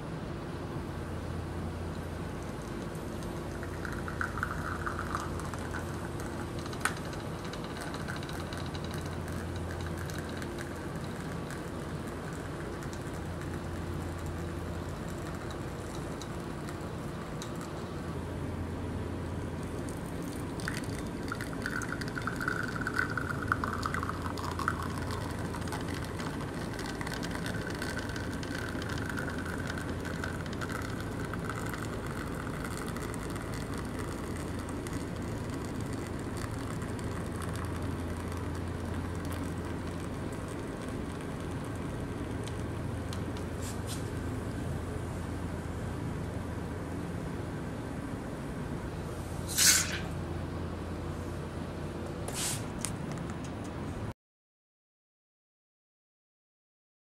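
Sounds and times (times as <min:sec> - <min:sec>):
steady low hum: 0:00.0 - 0:54.1
espresso dripping into glass: 0:02.4 - 0:18.2, 0:19.5 - 0:43.4.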